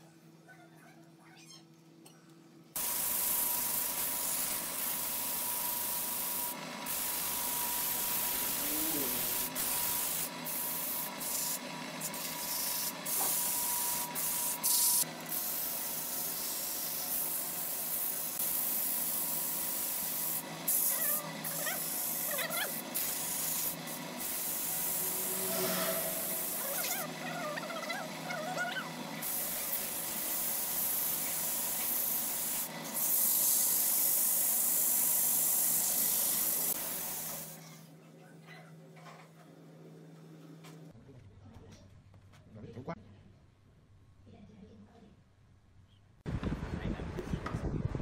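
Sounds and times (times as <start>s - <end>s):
thin steady whine: 2.8s - 30.6s
sandpaper hissing on spinning wood: 2.8s - 37.6s.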